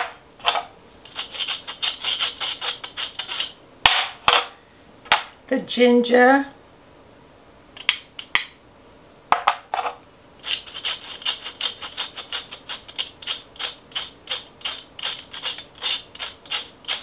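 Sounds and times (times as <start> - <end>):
spoon scraping through wire strainer: 1.0 - 3.6, 10.4 - 17.0.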